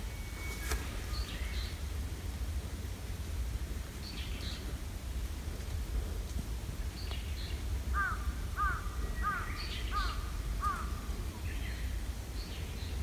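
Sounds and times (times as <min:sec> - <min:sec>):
faint birds chirping: 0:00.0 - 0:13.0
steady low rumble: 0:00.0 - 0:13.0
crow cawing: 0:08.0 - 0:11.0.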